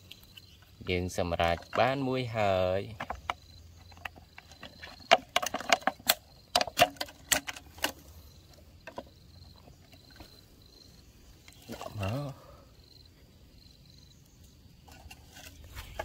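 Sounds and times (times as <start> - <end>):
plastic bottle crackling and clicking: 2.9 - 8.1, 8.8 - 10.3.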